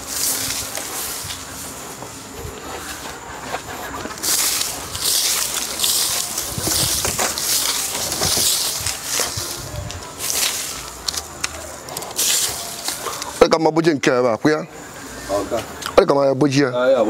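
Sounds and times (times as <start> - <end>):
broom sweeping sandy earth: 0.0 - 13.6.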